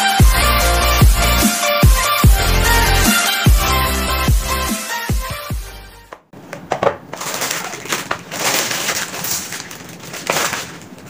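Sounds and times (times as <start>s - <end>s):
puzzle pieces rustling and clattering: 6.7s - 11.0s.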